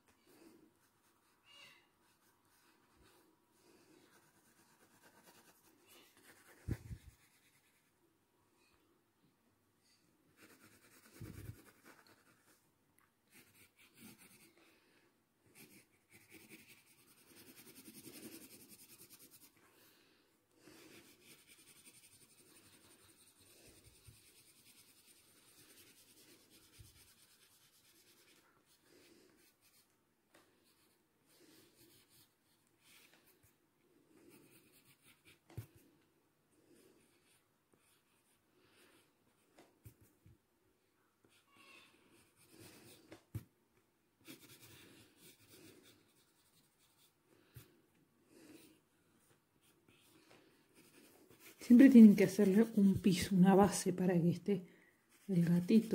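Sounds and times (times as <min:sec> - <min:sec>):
pencil scratching on paper: 0:02.0 - 0:07.9, 0:10.3 - 0:12.6, 0:13.3 - 0:14.7, 0:15.4 - 0:19.9, 0:20.6 - 0:33.5, 0:34.2 - 0:35.9, 0:36.8 - 0:40.1, 0:42.0 - 0:43.4, 0:44.2 - 0:47.7, 0:48.4 - 0:54.1, 0:55.1 - 0:55.9.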